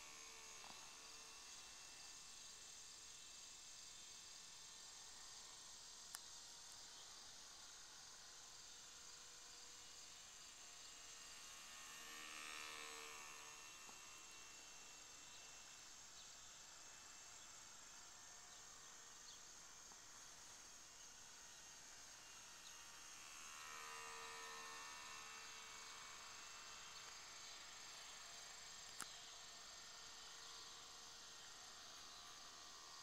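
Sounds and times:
high insect chorus: 0.0s - 33.0s
model plane motor whine: 0.0s - 33.0s.

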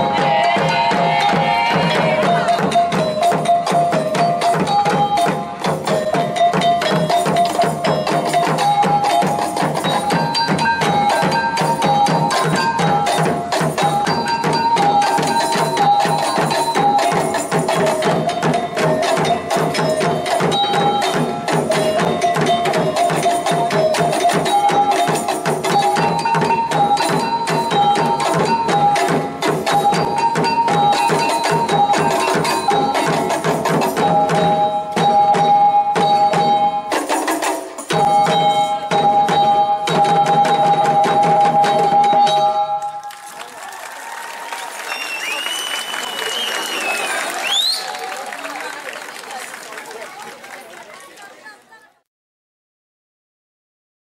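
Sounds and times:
fast steady drumming: 0.0s - 42.7s.

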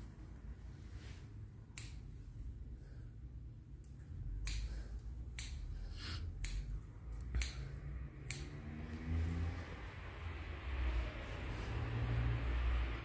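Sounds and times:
low background hum: 0.0s - 13.0s
scissors snipping hair: 1.6s - 2.3s, 3.8s - 9.4s.

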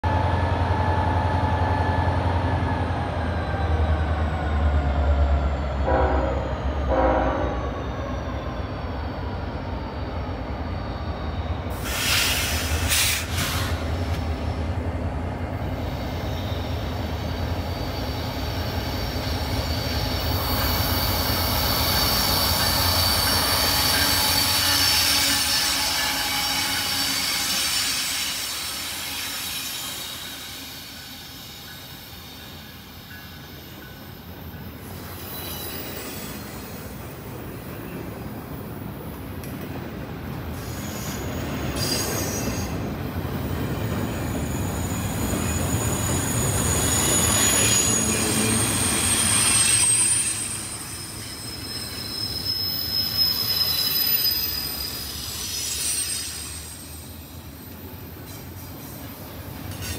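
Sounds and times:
diesel locomotives rumbling: 0.0s - 59.9s
train wheels squealing: 0.4s - 14.7s, 15.4s - 38.1s, 40.5s - 59.9s
train horn blasts: 5.8s - 7.6s, 24.5s - 27.3s.

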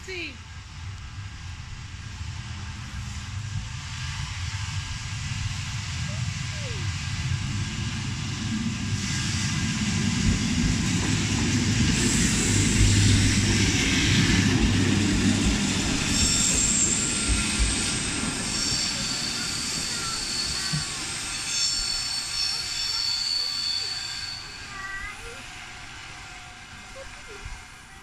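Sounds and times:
train wheels rumbling over rails: 0.4s - 28.0s
wheels squealing: 11.8s - 25.7s.

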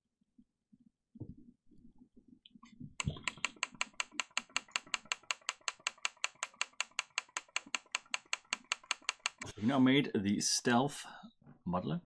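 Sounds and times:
mouse buttons clicking rapidly: 3.0s - 9.5s.

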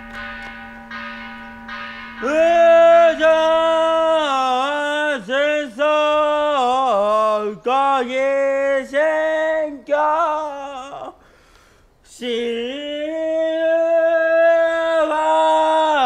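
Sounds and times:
bell ringing: 0.0s - 4.1s
man chanting in long notes: 2.2s - 11.1s.

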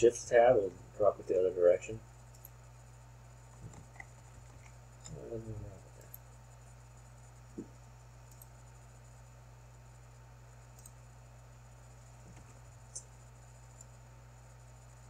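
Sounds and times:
low electrical hum: 0.0s - 15.0s
computer mouse clicks: 3.6s - 5.2s, 8.3s - 8.5s, 10.7s - 11.0s, 13.7s - 14.0s.

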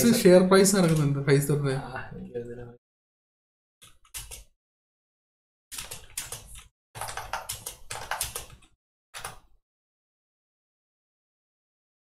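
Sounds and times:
typing on computer keyboard: 3.8s - 4.5s, 5.7s - 9.6s.

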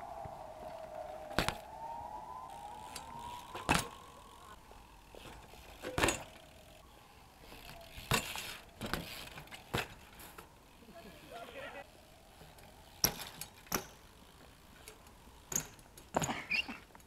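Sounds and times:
whine: 0.0s - 9.5s
bmx bikes landing on concrete: 1.2s - 1.8s, 2.8s - 4.2s, 5.1s - 6.5s, 7.5s - 10.5s, 12.4s - 17.0s
bike metal parts rattling: 2.5s - 6.8s, 7.4s - 10.6s, 11.2s - 17.0s.

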